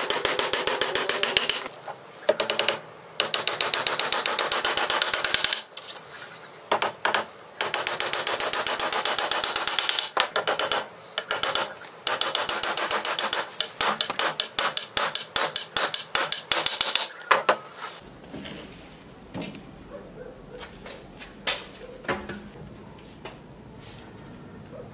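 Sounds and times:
hammer tapping nails into wood: 0:02.3 - 0:05.7, 0:06.7 - 0:17.6.

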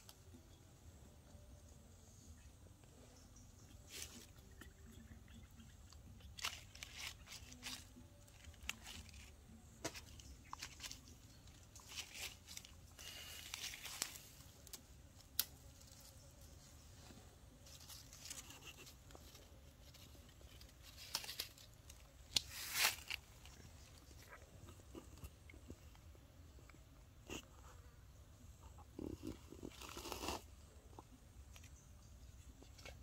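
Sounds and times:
dry leaves rustling and crackling: 0:06.4 - 0:14.8, 0:17.6 - 0:24.1.

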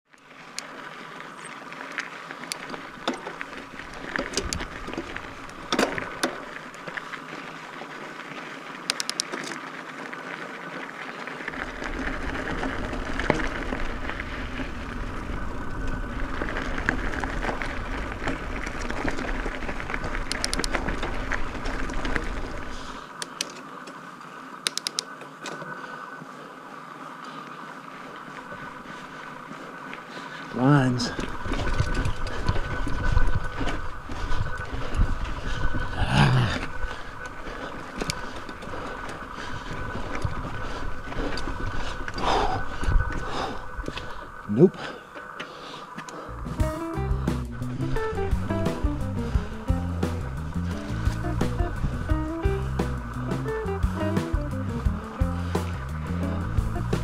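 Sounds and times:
bike tyres on gravel: 0:00.0 - 0:57.0
bike clicks and rattles: 0:00.1 - 0:57.0
heavy low rumble: 0:46.3 - 0:57.0.

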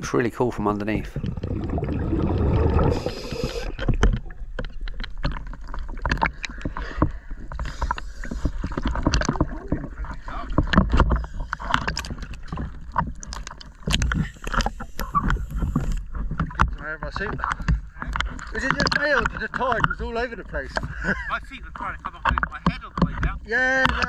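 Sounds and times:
sea water lapping and splashing: 0:00.0 - 0:24.0
brief rush of water: 0:01.3 - 0:03.8.

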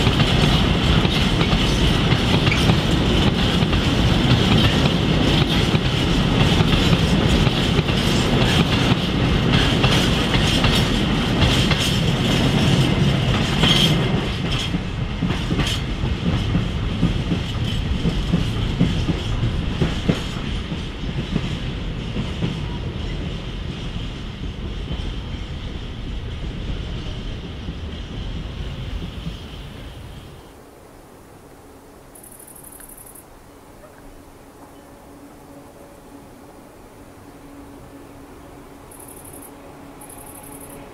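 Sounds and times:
wheel clicks on rail joints: 0:38.9 - 0:40.8.

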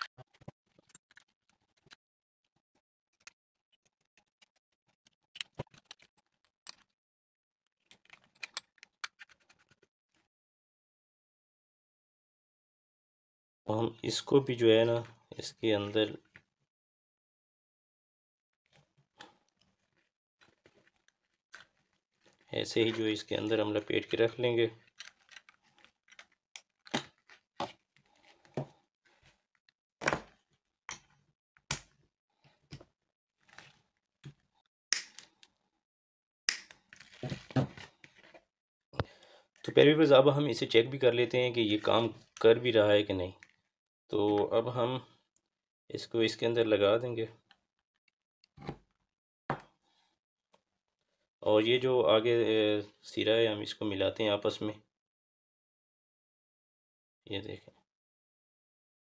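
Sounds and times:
screwdriver clicks and scratches: 0:08.1 - 0:09.8.

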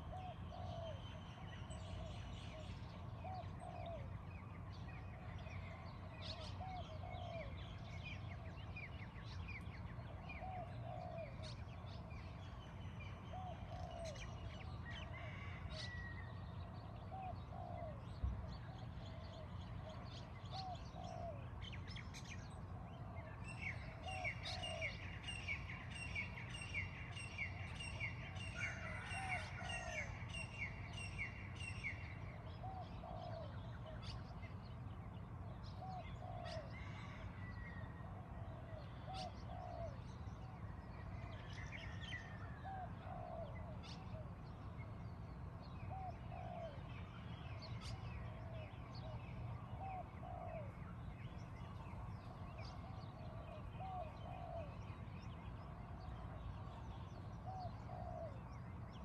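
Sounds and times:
dove cooing: 0:00.0 - 0:01.0, 0:32.6 - 0:34.1, 0:35.8 - 0:37.2, 0:38.4 - 0:40.0, 0:45.9 - 0:46.8, 0:52.8 - 0:54.8, 0:57.4 - 0:58.4.

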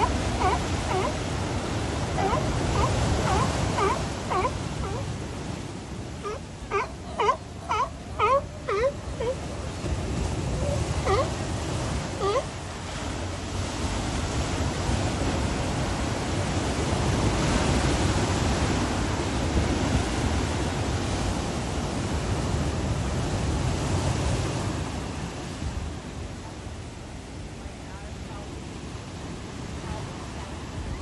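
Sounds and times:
sea lions wailing: 0:00.0 - 0:05.6, 0:06.2 - 0:12.7
ocean surf breaking on rocks: 0:00.0 - 0:31.0.

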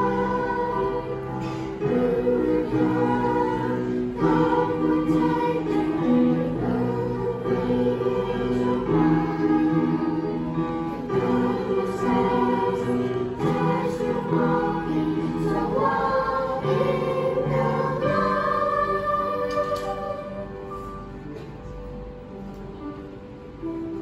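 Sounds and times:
children's choir singing: 0:00.0 - 0:21.7.

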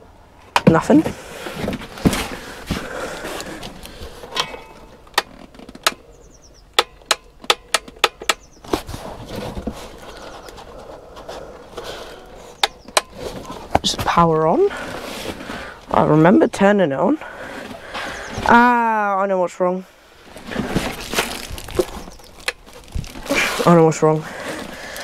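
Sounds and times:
rustling and handling: 0:00.5 - 0:05.9, 0:08.6 - 0:15.9, 0:20.2 - 0:25.0.

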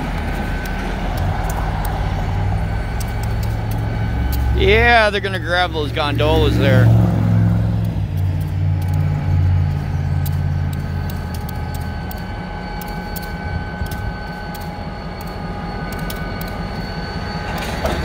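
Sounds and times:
locomotive engine rumble: 0:00.0 - 0:18.0
steady high whine: 0:00.0 - 0:18.0
clicks: 0:00.1 - 0:02.1, 0:02.9 - 0:04.6, 0:07.8 - 0:18.0.

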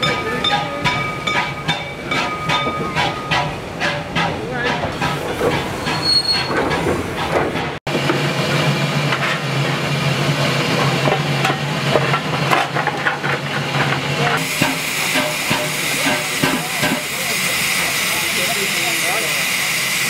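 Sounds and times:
steam hissing: 0:14.4 - 0:20.0.

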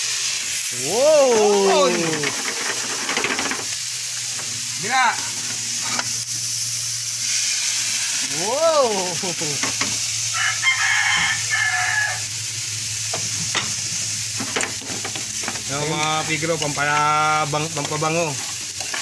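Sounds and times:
meat sizzling in frying pans: 0:00.0 - 0:19.0
rooster crowing: 0:10.2 - 0:12.4.

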